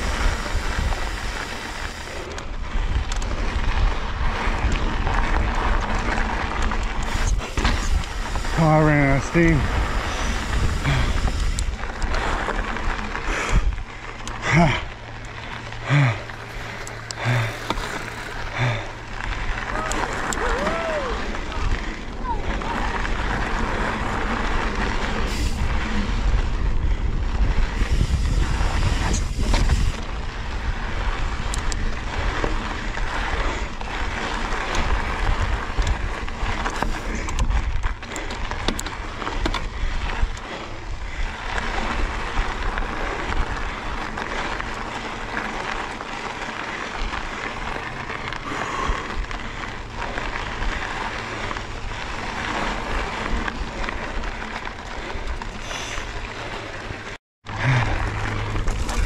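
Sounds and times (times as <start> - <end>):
tyres rolling on dirt: 0.0 - 59.0
wind buffeting microphone: 0.0 - 59.0
bike knocks and rattles: 27.7 - 59.0.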